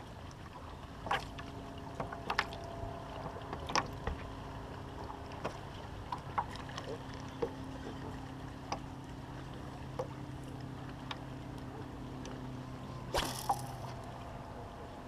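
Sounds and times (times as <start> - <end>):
fishing reel humming: 12.5 - 14.5
fishing rod swish: 13.1 - 14.0.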